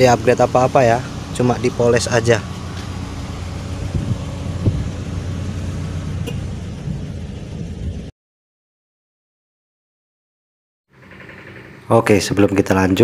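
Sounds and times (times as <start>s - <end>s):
car engine idling: 0.0s - 8.1s, 10.9s - 13.0s.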